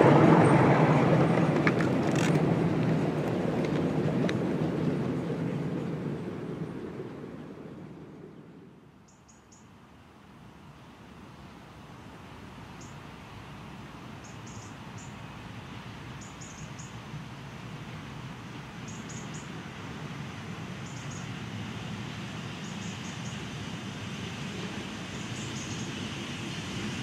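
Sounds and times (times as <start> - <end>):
steam train rumbling along track: 0.0 - 9.0, 10.6 - 27.0
small birds chirping: 14.2 - 15.2, 16.2 - 17.0, 18.8 - 19.6, 20.8 - 21.4.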